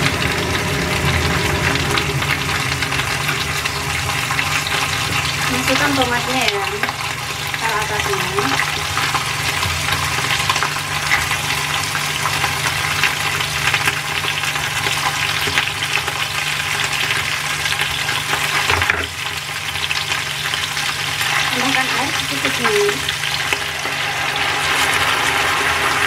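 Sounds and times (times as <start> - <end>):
food sizzling in hot oil: 0.0 - 26.0
low steady hum: 21.1 - 26.0.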